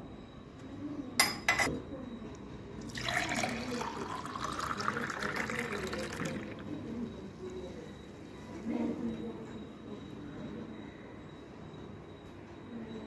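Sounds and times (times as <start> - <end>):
drink pouring into a glass: 2.8 - 6.9.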